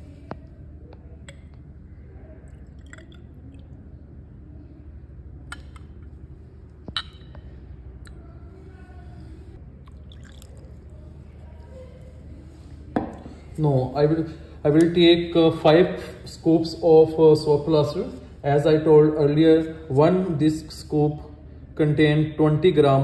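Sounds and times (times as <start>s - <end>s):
steady low hum: 0.0s - 23.0s
water pouring into glass beaker: 2.4s - 3.9s, 9.8s - 11.1s.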